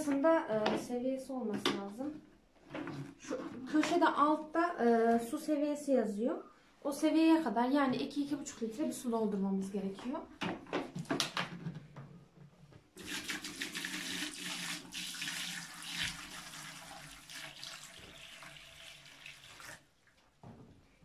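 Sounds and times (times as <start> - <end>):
water pouring into plastic tank: 13.0 - 20.2.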